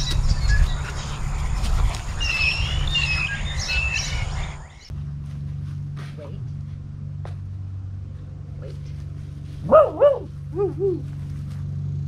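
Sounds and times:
songbirds chirping and whistling: 0:00.0 - 0:04.9
steady low rumble: 0:00.0 - 0:12.0.

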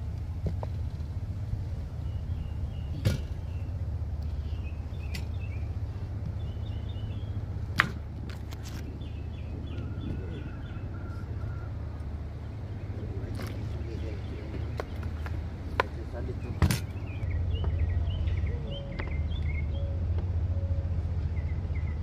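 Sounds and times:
steady low rumble: 0:00.0 - 0:22.0
birds chirping: 0:00.9 - 0:22.0.

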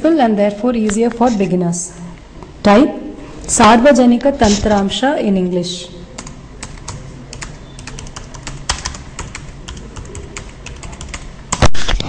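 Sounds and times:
typing on computer keyboard: 0:06.2 - 0:11.7.

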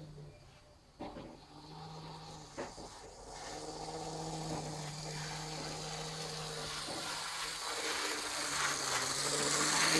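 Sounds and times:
model train motor humming: 0:01.3 - 0:09.9
wheels rattling on track: 0:02.4 - 0:09.9.

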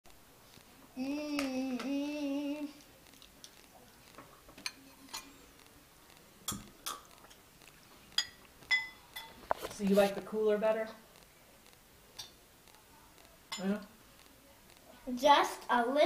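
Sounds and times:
person humming: 0:01.0 - 0:02.8
glass and dishes clinking: 0:06.5 - 0:07.4, 0:08.2 - 0:09.4.

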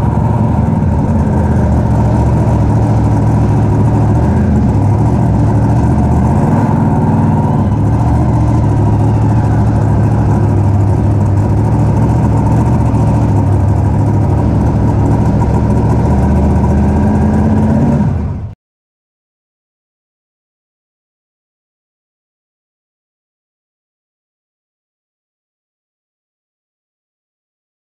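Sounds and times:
truck engine running: 0:00.0 - 0:18.6.

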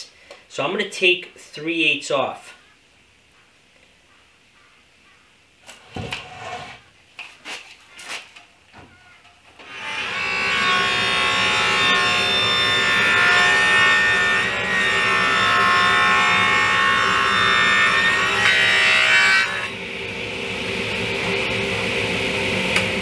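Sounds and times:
table saw ripping wood: 0:09.6 - 0:19.8.

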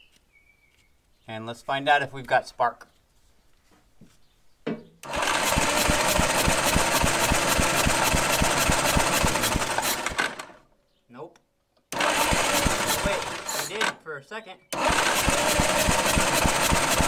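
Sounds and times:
starter motor cranking engine: 0:05.0 - 0:10.6, 0:11.9 - 0:14.0, 0:14.7 - 0:17.0.

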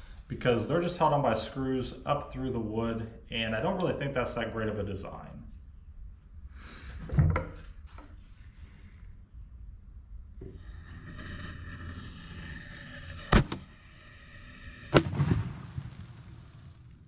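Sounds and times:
firework bangs: 0:14.9 - 0:17.0.

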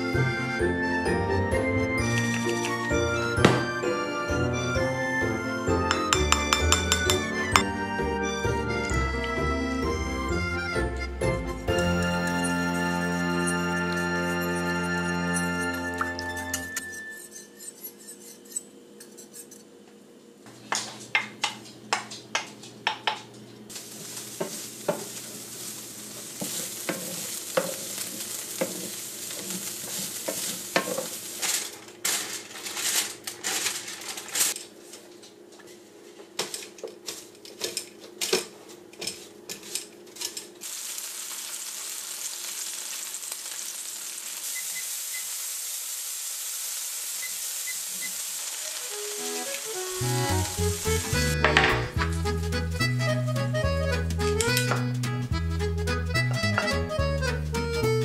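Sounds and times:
utensils and pans clattering: 0:05.9 - 0:07.7, 0:26.4 - 0:34.6, 0:51.0 - 0:52.1
meat sizzling in a skillet: 0:23.7 - 0:31.8, 0:40.6 - 0:51.5.

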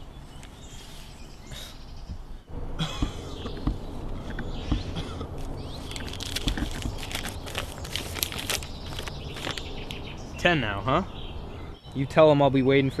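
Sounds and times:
low steady hum: 0:00.0 - 0:11.8
paper rustling and crinkling: 0:04.8 - 0:10.0.

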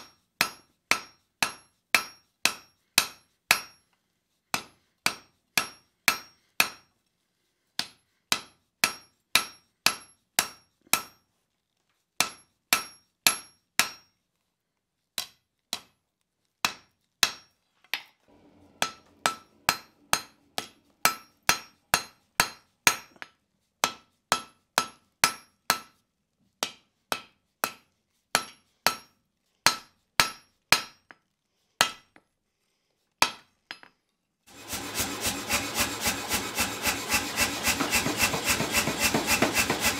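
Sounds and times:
hammer striking steel on anvil: 0:00.0 - 0:03.8, 0:04.5 - 0:06.9, 0:07.8 - 0:11.2, 0:12.2 - 0:14.1, 0:16.6 - 0:17.5, 0:18.3 - 0:26.0, 0:27.1 - 0:27.8, 0:28.4 - 0:31.1, 0:34.5 - 0:39.9.

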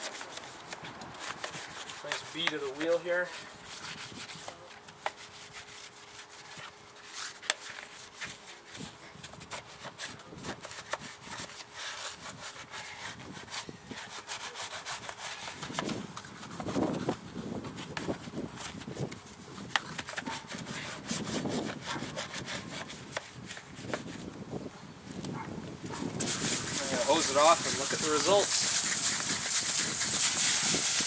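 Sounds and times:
brush scrubbing wet wheel: 0:00.0 - 0:17.1, 0:19.7 - 0:24.2, 0:26.2 - 0:31.0.

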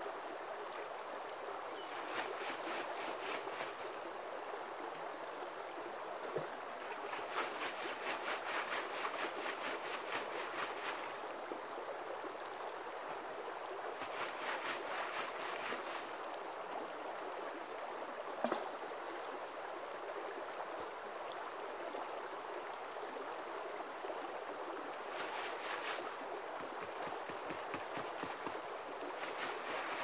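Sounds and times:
creek flowing: 0:00.0 - 0:30.0
gravel rattling in a sifting screen: 0:01.9 - 0:03.9, 0:06.8 - 0:11.2, 0:14.0 - 0:16.1, 0:25.0 - 0:28.6, 0:29.2 - 0:30.0.

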